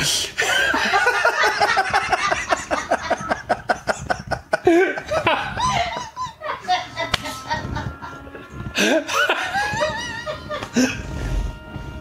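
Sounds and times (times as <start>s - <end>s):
people laughing hard: 0.4s - 11.0s.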